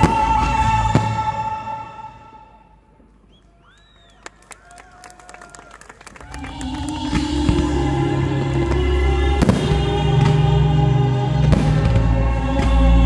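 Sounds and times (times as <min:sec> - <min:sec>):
loud music with heavy bass: 0:06.6 - 0:13.0.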